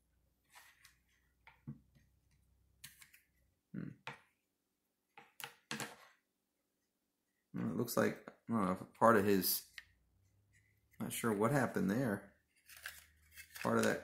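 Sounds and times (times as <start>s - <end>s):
cards clicking on wooden table: 5.2s - 6.1s, 12.6s - 14.0s.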